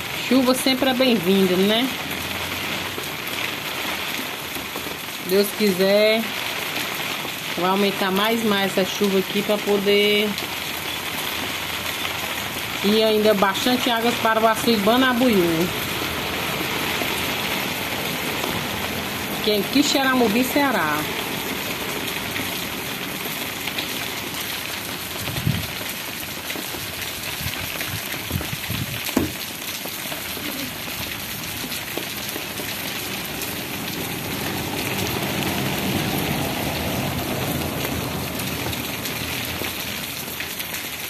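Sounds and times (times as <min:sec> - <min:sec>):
light rain on wet street: 0:00.0 - 0:41.0
sharp knocks: 0:29.1 - 0:29.4.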